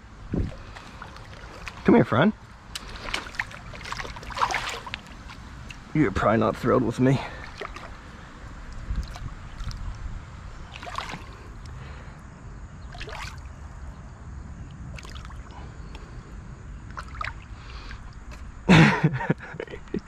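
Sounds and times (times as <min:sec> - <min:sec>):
creek water trickling: 0:00.0 - 0:19.6
fish splashing in water: 0:00.4 - 0:01.8, 0:02.7 - 0:05.9, 0:07.3 - 0:10.0, 0:10.6 - 0:11.7, 0:12.9 - 0:13.6, 0:14.9 - 0:15.6, 0:16.9 - 0:18.2.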